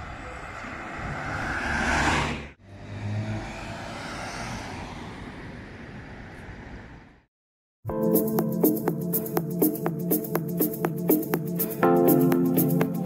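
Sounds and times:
vehicle passing close: 0.0s - 6.9s
car passing with low engine hum: 0.0s - 7.2s
steady traffic noise: 0.0s - 7.3s.

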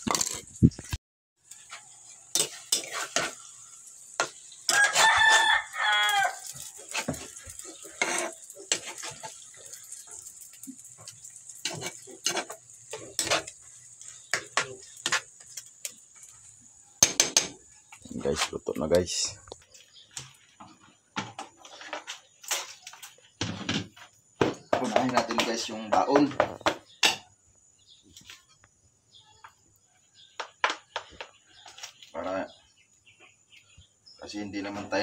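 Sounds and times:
food sizzling: 0.0s - 20.6s
spatula scraping a frying pan: 1.4s - 17.8s
rooster crowing: 4.7s - 6.6s.

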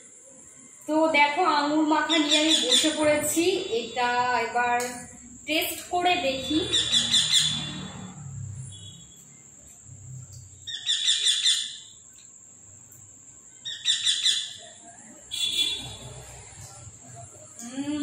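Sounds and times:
high-pitched whine: 1.6s - 12.0s
bird chirping: 2.0s - 3.2s, 6.3s - 9.4s, 10.3s - 12.2s, 13.5s - 14.7s.

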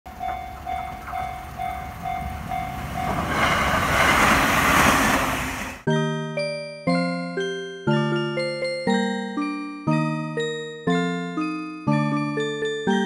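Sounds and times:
level crossing bell ringing: 0.1s - 3.4s, 5.8s - 13.0s
train rushing past: 0.1s - 5.9s.

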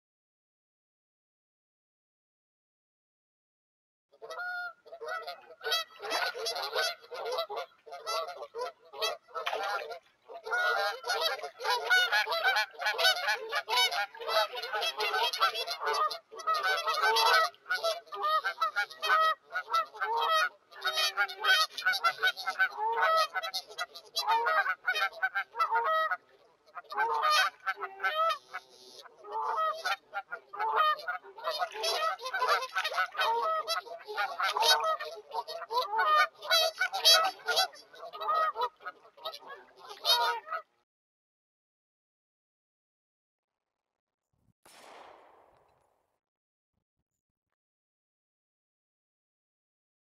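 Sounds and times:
flock of water birds calling: 4.2s - 40.7s.

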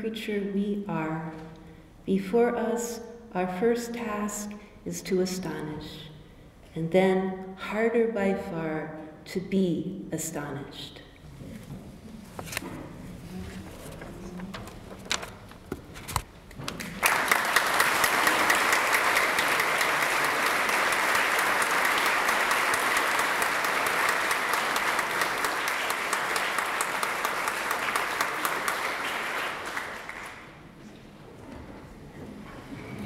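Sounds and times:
audience applauding: 16.8s - 30.6s.

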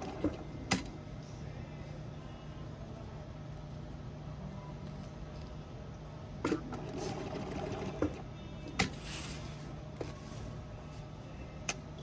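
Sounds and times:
sewing machine motor hum: 6.4s - 8.2s.

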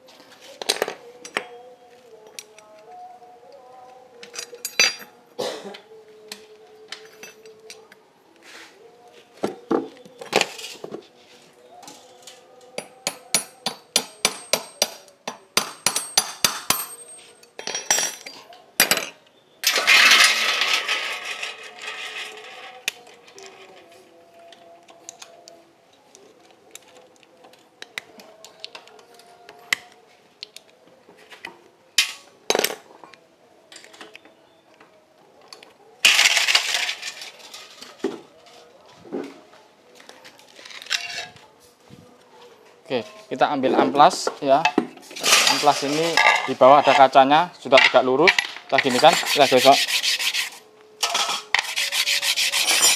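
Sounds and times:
metal tools clinking on workbench: 4.2s - 5.2s, 6.9s - 7.8s, 15.7s - 23.6s, 44.6s - 47.1s, 51.0s - 51.8s.

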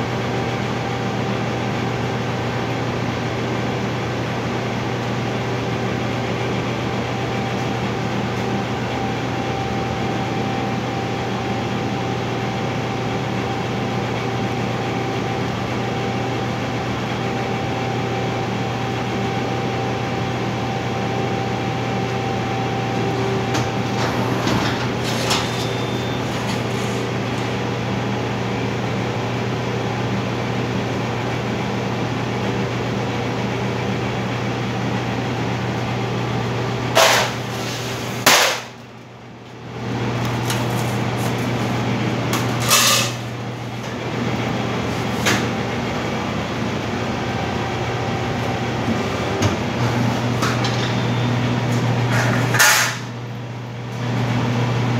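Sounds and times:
press brake humming: 22.0s - 27.6s.

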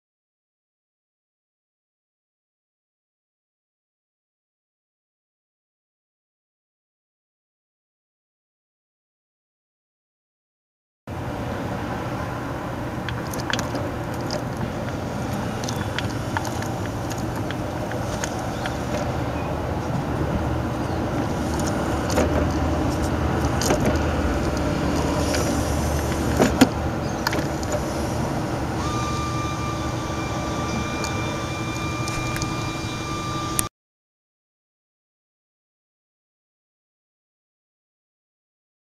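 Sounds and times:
car engine rumbling: 11.1s - 33.7s
steady whine: 11.1s - 33.7s.

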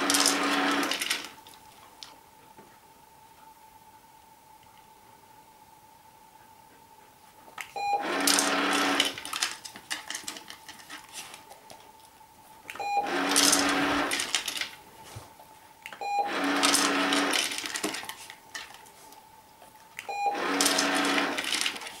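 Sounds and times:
treats rattling into bowl: 13.3s - 14.8s.

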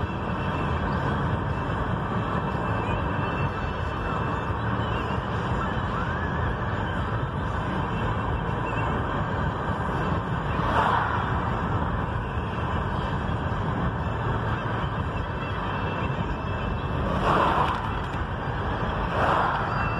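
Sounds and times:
car road and engine noise: 0.0s - 19.9s
vehicle passing: 16.9s - 19.9s.

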